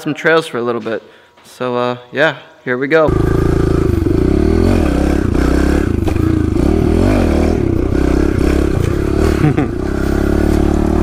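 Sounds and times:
motorbike engine revving: 0:03.1 - 0:11.0.

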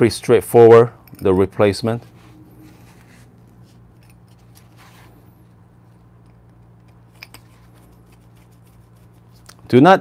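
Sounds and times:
faint low hum: 0:00.0 - 0:10.0
faint handling rustle: 0:01.8 - 0:06.0.

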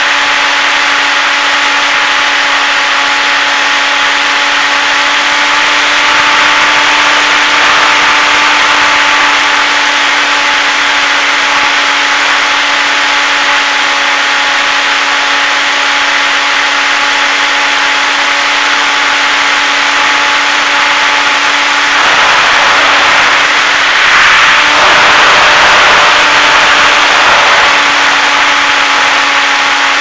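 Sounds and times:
electric motor and propeller running: 0:00.0 - 0:30.0
air rushing over microphone: 0:20.2 - 0:29.6.

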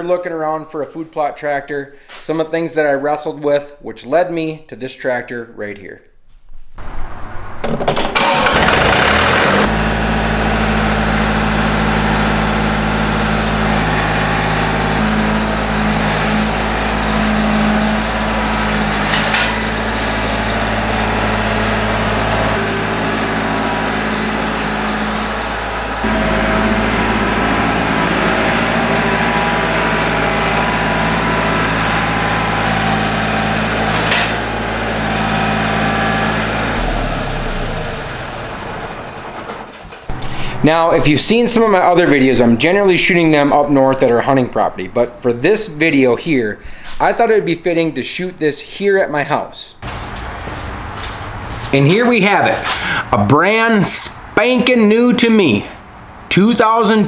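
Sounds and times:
tractor diesel engine starting: 0:06.8 - 0:45.8, 0:49.8 - 0:57.0
tractor engine running steadily: 0:08.0 - 0:40.6, 0:49.8 - 0:51.8.

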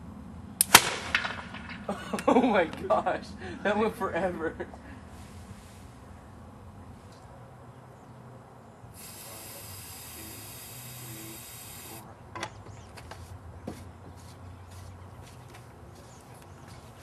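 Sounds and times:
aerosol can spraying hiss: 0:09.0 - 0:12.0.

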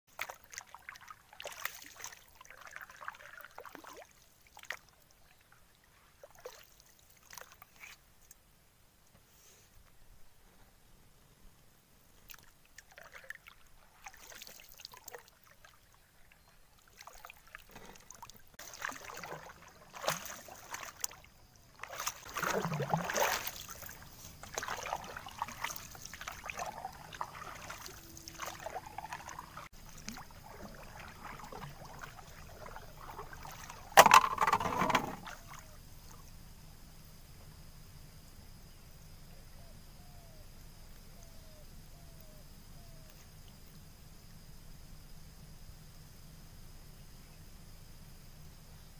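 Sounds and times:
water sloshing and splashing: 0:00.1 - 0:08.1, 0:12.2 - 0:36.2
faint steady hiss: 0:00.2 - 0:48.9
loud splash: 0:21.8 - 0:34.1
knocks against wooden hull: 0:34.0 - 0:35.3.

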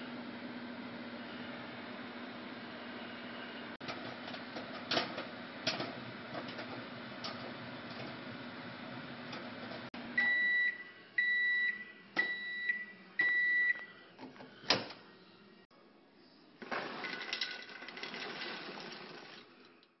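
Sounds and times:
microwave beeping: 0:10.0 - 0:14.0.

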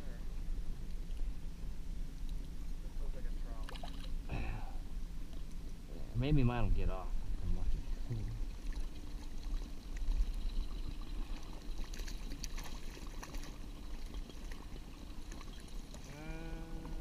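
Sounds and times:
steady low rumble: 0:00.0 - 0:12.3
fish splashing at water surface: 0:08.4 - 0:16.1.

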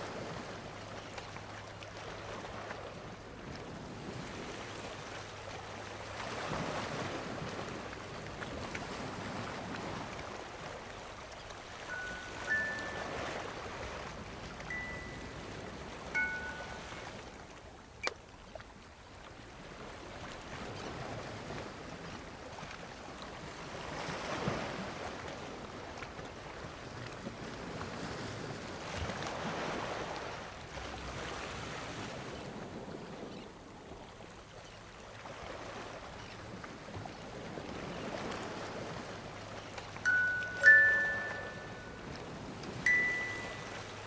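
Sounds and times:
wind: 0:00.0 - 0:44.0.

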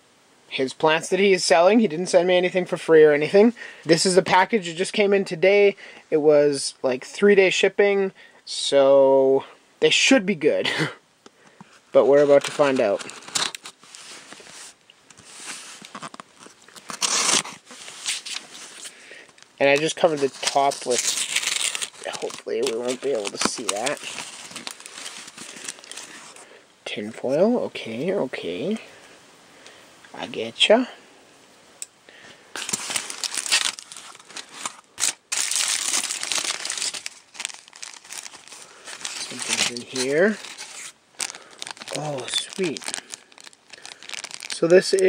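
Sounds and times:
aluminium foil crinkling: 0:12.0 - 0:26.5, 0:32.6 - 0:45.0
knife slicing packing tape: 0:17.0 - 0:17.6.

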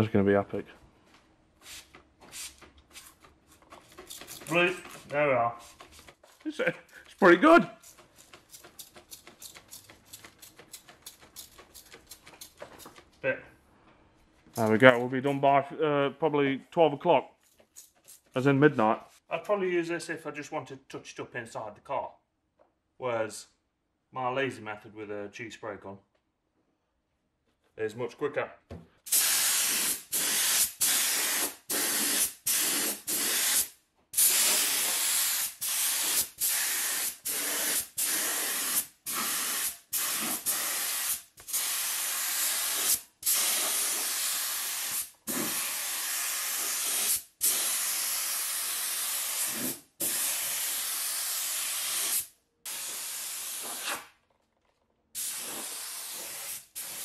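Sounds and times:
spray gun hissing: 0:29.1 - 0:54.0, 0:55.2 - 0:57.0.

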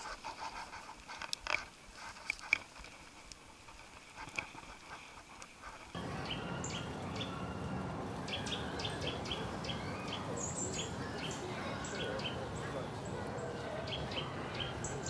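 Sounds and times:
outdoor background hiss: 0:00.0 - 0:15.0
small birds chirping: 0:06.0 - 0:15.0.

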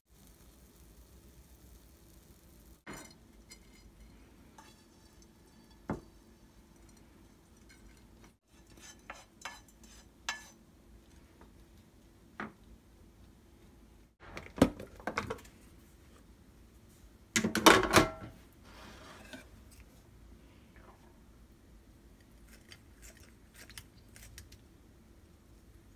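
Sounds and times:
wooden spatula scraping and tapping: 0:02.9 - 0:12.6, 0:18.7 - 0:20.0.

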